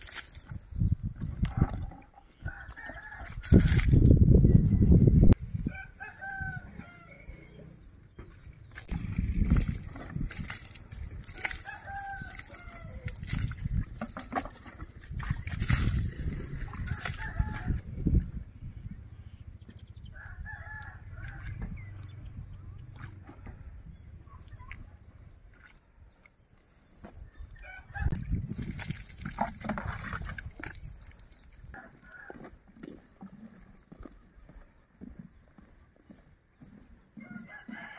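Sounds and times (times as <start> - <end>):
water splashing: 0.0 - 0.9, 8.2 - 17.8, 28.4 - 34.1
rooster crowing: 5.6 - 7.5, 11.6 - 13.1, 16.9 - 17.8, 37.2 - 37.9.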